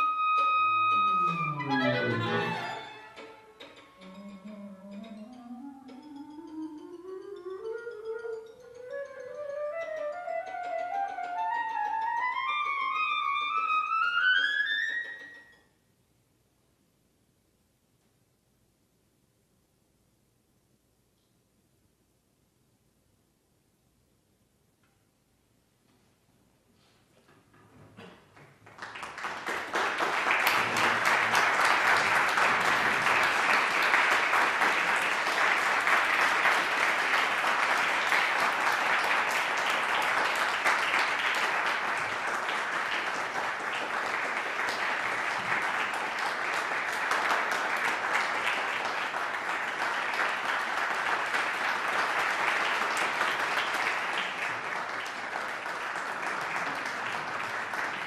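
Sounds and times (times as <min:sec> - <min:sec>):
audience applauding: 0:00.0 - 0:04.3, 0:28.3 - 0:58.0.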